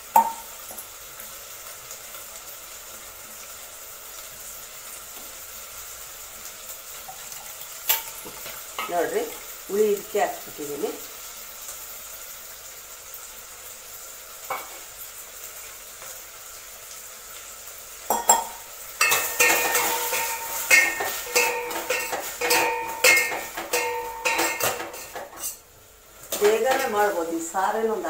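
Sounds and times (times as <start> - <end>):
vegetables sizzling in oil: 0.0 - 28.0
metal spoon scraping pot: 19.0 - 25.6.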